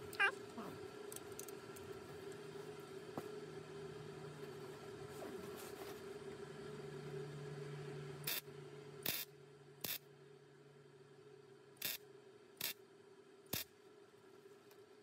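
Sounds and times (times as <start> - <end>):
faint steady hum: 0.0 - 15.0
welder zaps: 9.0 - 10.0, 11.8 - 12.0.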